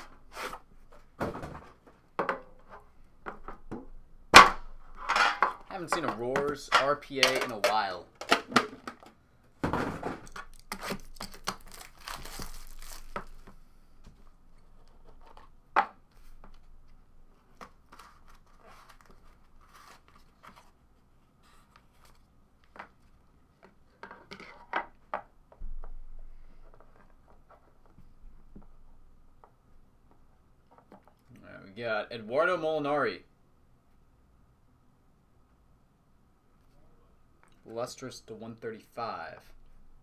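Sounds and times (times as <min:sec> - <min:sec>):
plastic shrink wrap tearing: 0:10.5 - 0:13.4.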